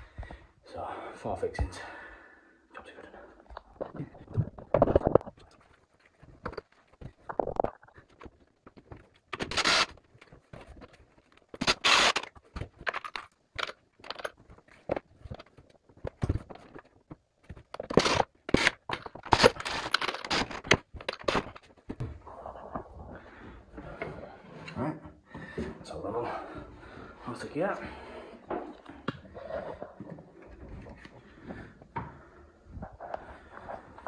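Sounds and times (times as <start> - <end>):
scraping and knocking on tiled wall: 3.7 - 5.6.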